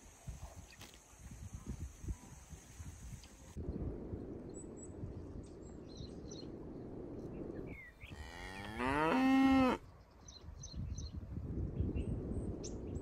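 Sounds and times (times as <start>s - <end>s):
low wind noise: 0.0s - 13.0s
cow mooing: 8.1s - 9.8s.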